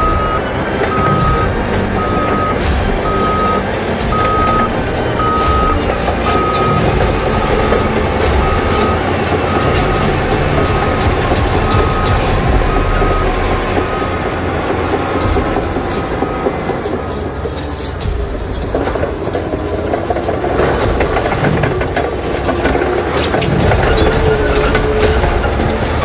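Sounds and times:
reverse alarm beeping: 0.0s - 17.3s
diesel engine and track noise: 0.0s - 26.0s.

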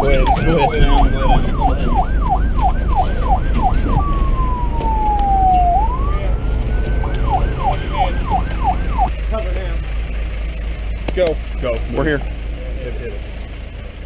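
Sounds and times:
electronic police siren: 0.0s - 10.6s
steady low rumble: 0.0s - 14.0s.

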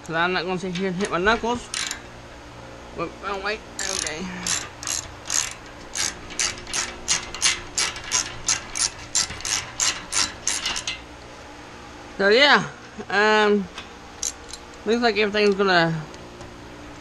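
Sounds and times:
socket ratchet clicking: 1.0s - 2.0s, 3.8s - 11.0s, 14.2s - 14.8s.

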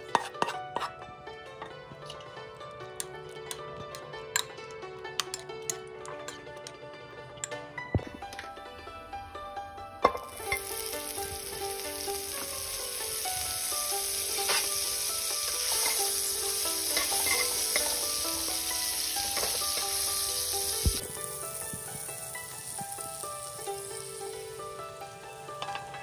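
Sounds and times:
metal tongs clicking: 3.0s - 6.8s, 17.0s - 18.0s, 19.3s - 19.9s
butter sizzling in a wok: 10.0s - 26.0s.

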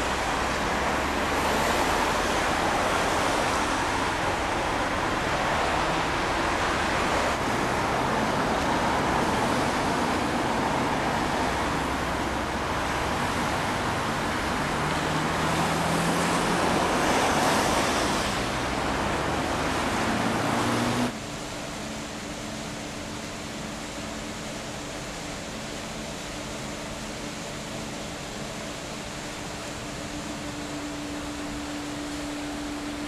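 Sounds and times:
road traffic rushing: 0.0s - 21.2s, 28.2s - 33.0s
low engine hum: 0.0s - 33.0s.

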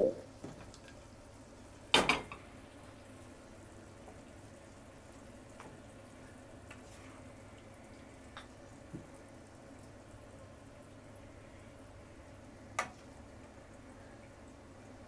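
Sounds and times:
food simmering in a frying pan: 0.1s - 15.0s.

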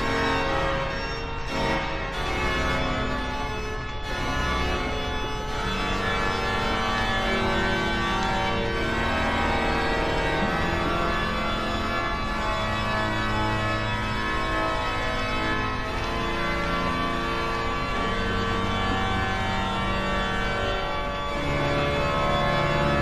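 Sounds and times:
organ playing slow chords: 0.0s - 23.0s.

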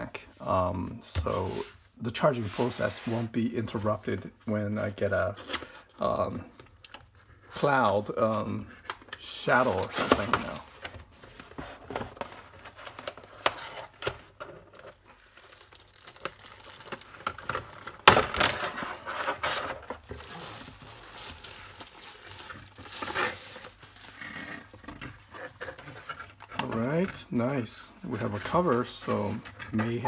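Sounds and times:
plastic and paper crinkling: 1.4s - 30.0s
cardboard scraping: 16.3s - 30.0s.

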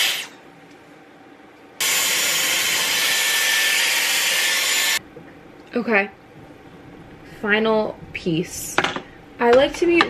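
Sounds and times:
hair styler blowing air: 0.0s - 0.3s, 1.8s - 5.0s.

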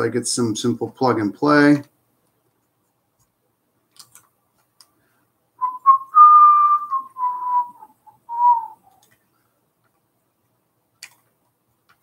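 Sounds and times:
faint handling clicks: 2.2s - 5.0s
person whistling: 5.6s - 9.0s.

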